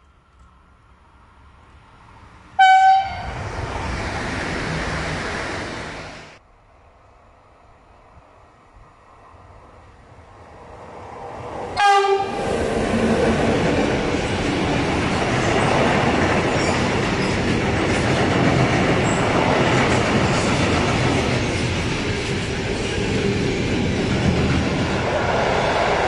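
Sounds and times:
locomotive horn blast: 2.6 - 3.4, 11.8 - 12.4
train wheels rumbling and rattling: 10.8 - 26.0.

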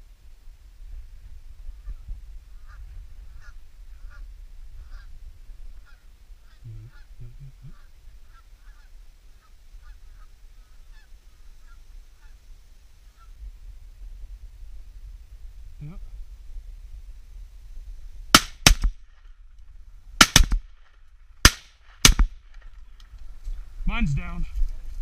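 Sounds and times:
constant low rumble: 0.0 - 25.0
geese honking: 4.8 - 5.1, 5.8 - 12.4.

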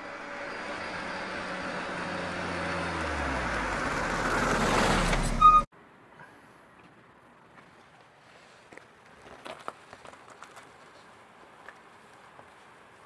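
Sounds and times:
car engine hum: 0.0 - 5.7
road and wind noise: 0.0 - 13.0.

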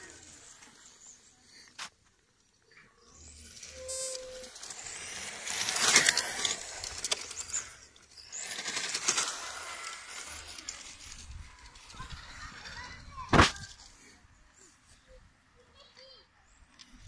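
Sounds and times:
tyres hissing on asphalt: 0.0 - 2.3, 3.0 - 15.1
toy car motor whine: 3.0 - 13.2.

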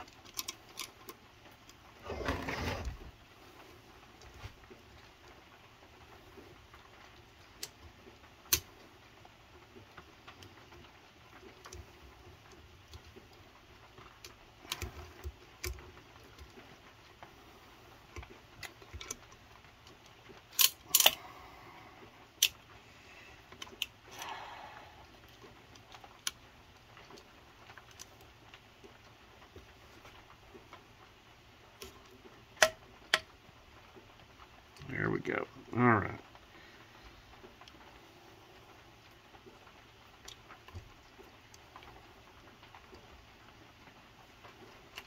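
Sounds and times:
metal scrape: 2.0 - 3.1.

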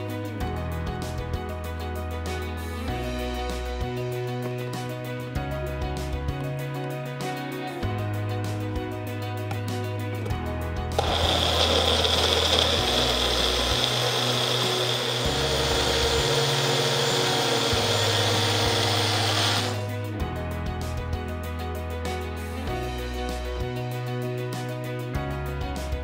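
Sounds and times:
blender motor whining: 11.0 - 19.8.

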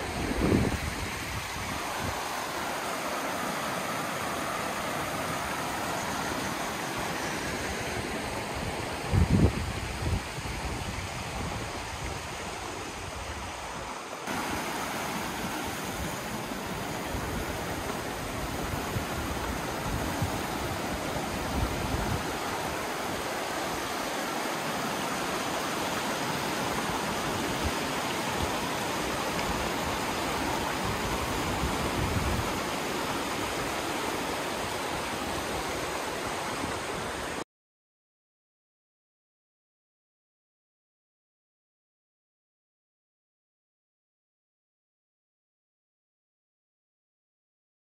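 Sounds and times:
creek water rushing over rocks: 0.0 - 37.4.

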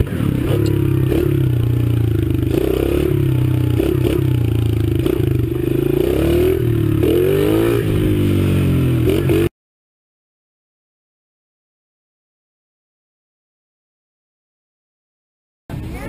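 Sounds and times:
dirt bike engine revving: 0.0 - 9.5.

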